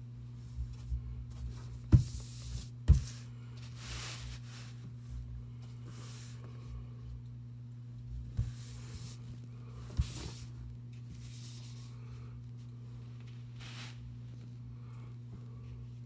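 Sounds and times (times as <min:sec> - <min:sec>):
steady low hum: 0:00.0 - 0:16.0
paintbrush swishing on paper: 0:01.4 - 0:04.8, 0:13.4 - 0:14.1.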